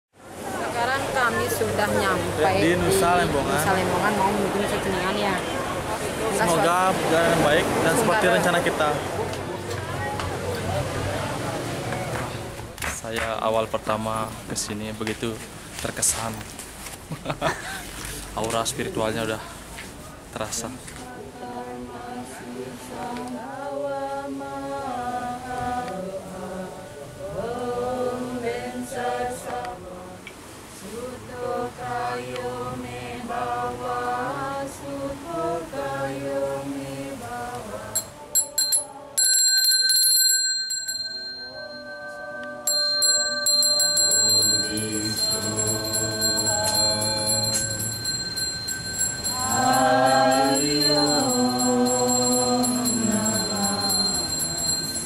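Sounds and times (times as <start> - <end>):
voices singing a devotional chant: 0.4 - 12.5, 20.5 - 39.3, 41.4 - 55.0
hand bell ringing: 38.0 - 55.0.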